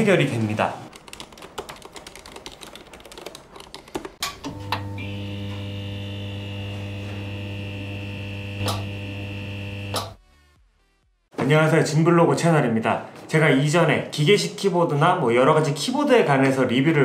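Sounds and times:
mechanical keyboard typing: 0.9 - 4.2
electric buzzing hum: 4.2 - 10.2
sharp click: 8.6 - 8.9, 9.9 - 10.2.

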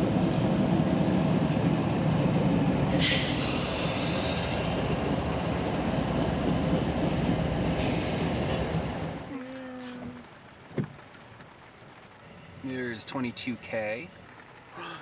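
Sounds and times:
freight train rumbling on rails: 0.0 - 9.3.

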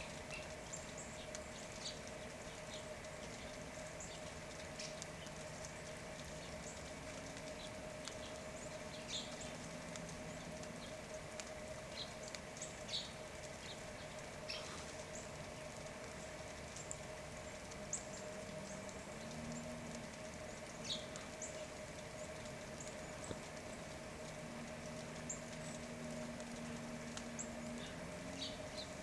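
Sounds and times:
faint steady hum: 0.0 - 29.0
songbird chip calls: 11.9 - 15.4, 27.3 - 29.0.

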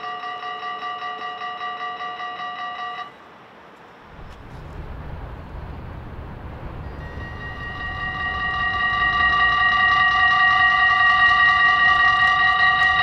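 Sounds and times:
level crossing warning bell: 0.0 - 3.3, 4.1 - 13.0
low rumble: 4.1 - 13.0.

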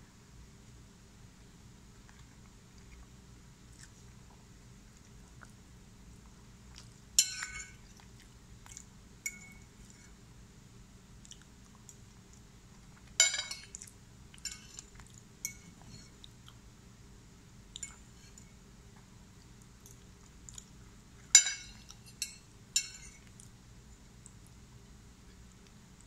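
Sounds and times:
quiet chewing: 1.9 - 10.2, 11.2 - 16.7, 17.7 - 23.6
fork clinking on ceramic plate: 7.2 - 7.8, 9.3 - 9.6, 13.2 - 13.8, 14.4 - 16.1, 21.3 - 23.2.

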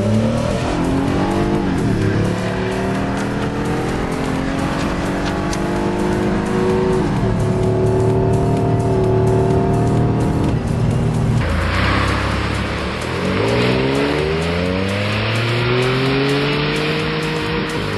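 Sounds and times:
car engine revving: 0.0 - 17.9.

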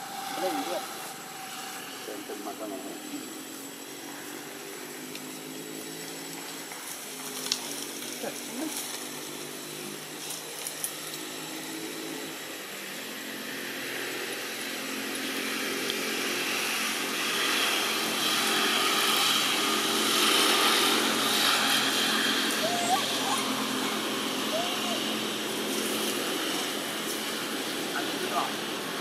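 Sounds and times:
small engine humming: 0.0 - 29.0.

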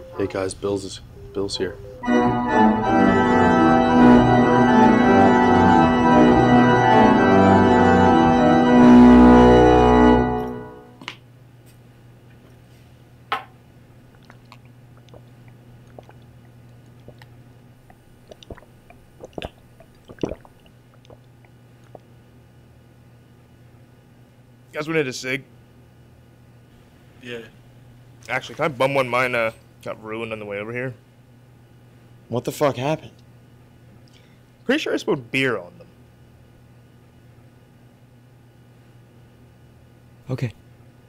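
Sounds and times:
organ chords: 0.0 - 11.0
low steady hum: 0.0 - 41.0.

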